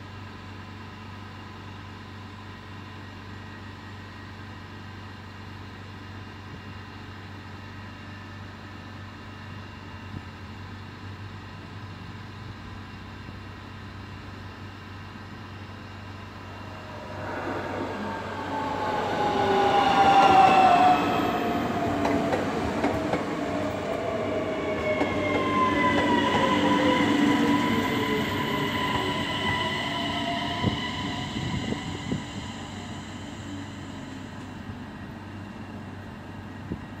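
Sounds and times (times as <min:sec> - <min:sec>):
train wheels rushing on rail: 0:15.0 - 0:37.0
train motor whine: 0:15.8 - 0:35.1.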